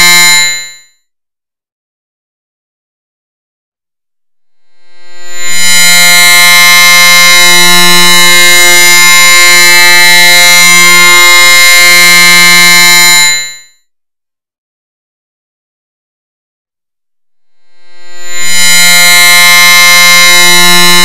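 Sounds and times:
distorted electronic buzzing drone: 0:04.5 - 0:09.8, 0:17.4 - 0:21.0.

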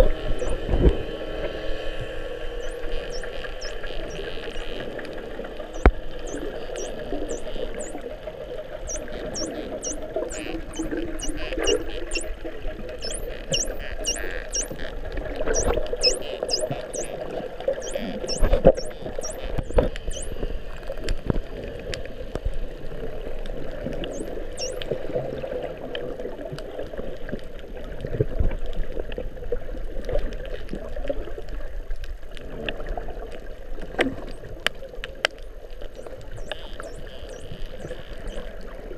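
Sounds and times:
dolphins whistling: 0:00.0 - 0:00.7, 0:02.4 - 0:05.0, 0:05.7 - 0:08.1, 0:08.8 - 0:14.9, 0:15.5 - 0:17.2, 0:17.8 - 0:20.7, 0:24.1 - 0:24.9, 0:36.0 - 0:38.5
muffled rush of water: 0:00.0 - 0:38.9
dolphin clicks: 0:02.6 - 0:05.0, 0:05.8 - 0:08.0, 0:08.9 - 0:14.9, 0:15.5 - 0:17.2, 0:17.8 - 0:21.1, 0:24.0 - 0:24.9.

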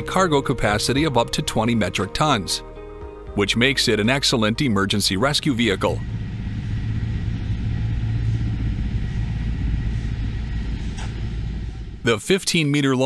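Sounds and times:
low mechanical rumble: 0:00.0 - 0:12.7.

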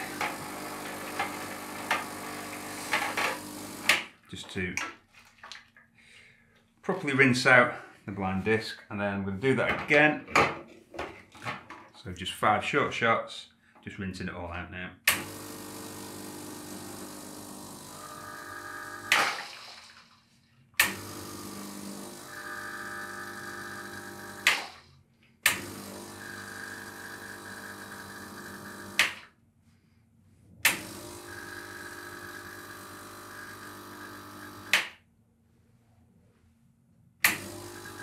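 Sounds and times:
vibratory pump running: 0:00.0 - 0:04.0, 0:15.1 - 0:19.9, 0:20.8 - 0:24.8, 0:25.5 - 0:29.2, 0:30.7 - 0:34.8, 0:37.2 - 0:38.0.

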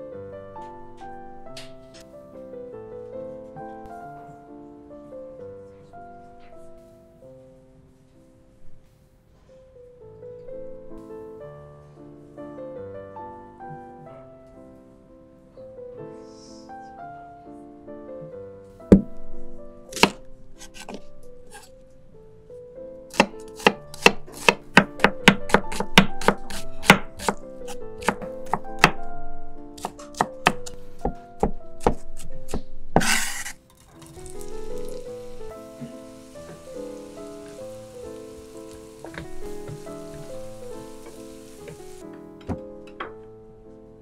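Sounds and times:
background music: 0:00.0 - 0:44.0
knife chopping on wooden board: 0:19.9 - 0:21.7, 0:23.1 - 0:29.0, 0:29.8 - 0:33.6
onion sizzling in hot pan: 0:23.1 - 0:28.9, 0:33.0 - 0:42.0.

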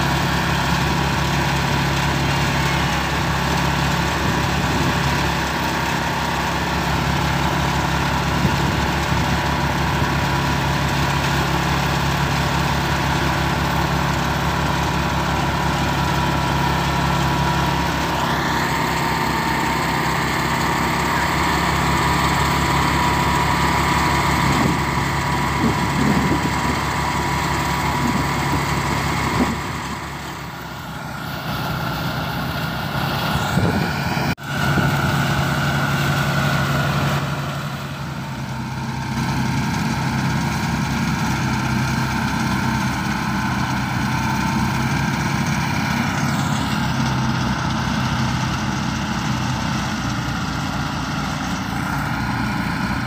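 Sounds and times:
rice thresher engine running: 0:00.0 - 0:53.0.

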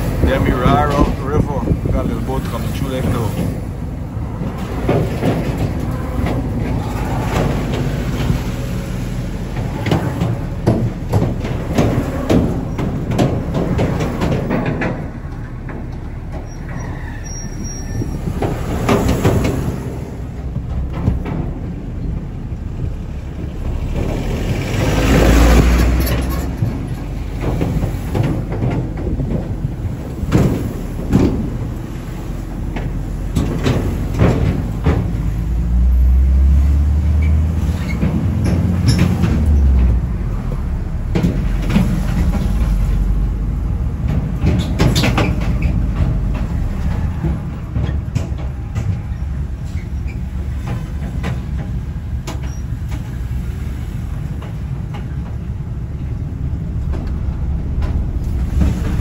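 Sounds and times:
car road rumble: 0:00.0 - 0:59.0
tyres knocking on deck joints: 0:09.3 - 0:16.6.

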